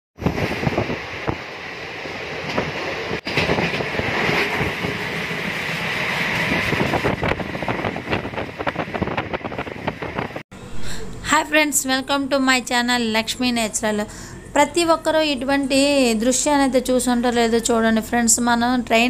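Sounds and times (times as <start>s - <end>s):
rush of wind: 0.2s - 10.4s
train wheels rattling on rails: 0.2s - 10.4s.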